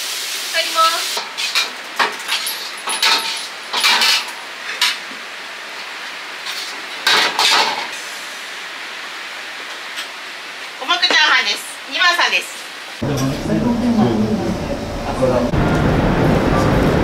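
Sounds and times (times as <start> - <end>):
frying sizzle: 0.0 - 11.2.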